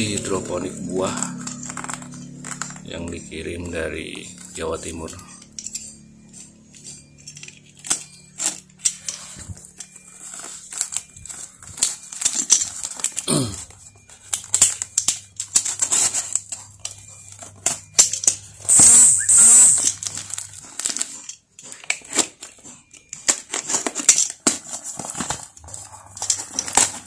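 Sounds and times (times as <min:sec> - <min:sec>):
plastic crinkling: 0:00.0 - 0:27.0
knife scraping through tape: 0:18.6 - 0:21.1.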